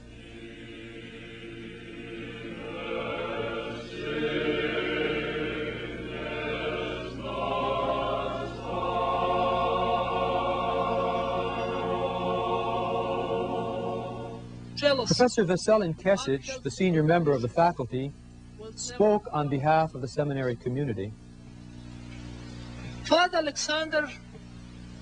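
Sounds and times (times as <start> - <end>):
choir singing held chords: 0.0 - 14.8.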